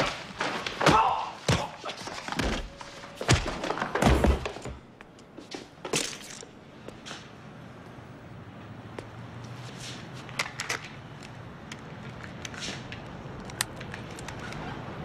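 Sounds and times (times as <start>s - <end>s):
punches: 0.0s - 2.0s.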